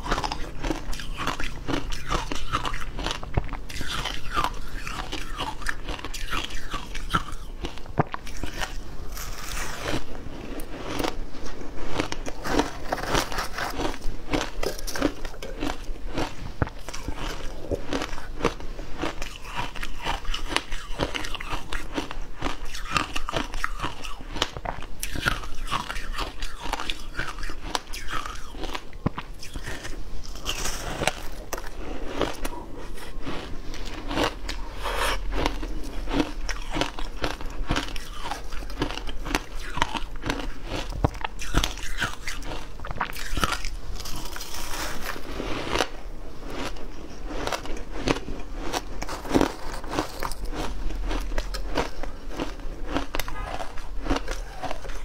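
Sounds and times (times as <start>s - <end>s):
crunching shaved ice: 0.0s - 55.0s
wet mouth sounds: 19.1s - 45.9s.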